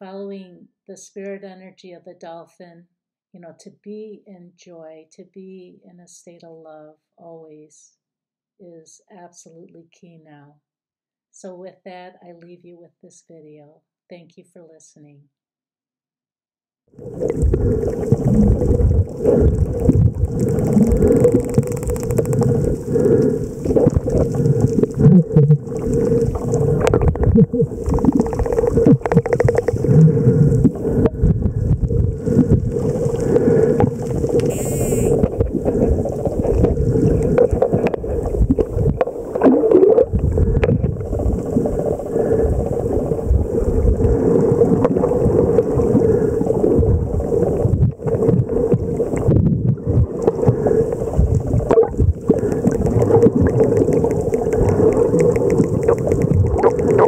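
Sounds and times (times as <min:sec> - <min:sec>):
underwater rush of water: 0:17.0 - 0:57.0
dolphin clicks: 0:20.2 - 0:25.0, 0:27.8 - 0:30.7, 0:33.8 - 0:35.5, 0:51.7 - 0:57.0
high-pitched dolphin call: 0:34.4 - 0:35.3.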